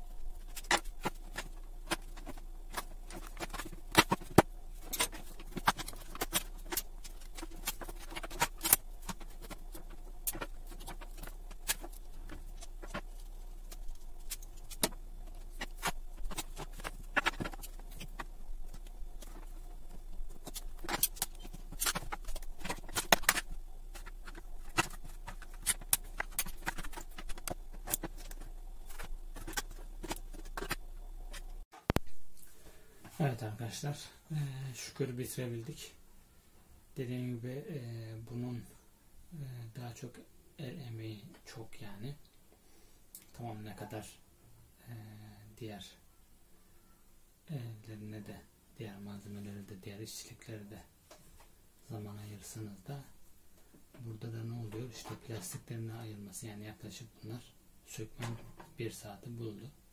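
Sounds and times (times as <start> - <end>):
steady low hum: 0.0 - 46.6.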